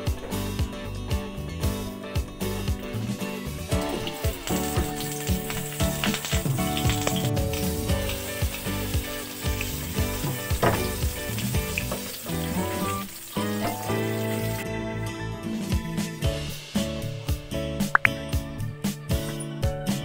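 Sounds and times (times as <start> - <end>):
sausages sizzling in oil: 2.5 - 14.6.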